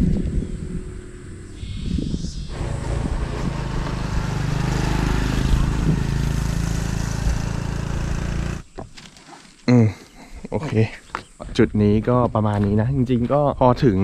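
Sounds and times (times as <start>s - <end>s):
road and wind noise: 0.0s - 9.0s
vehicle engine running: 2.5s - 8.7s.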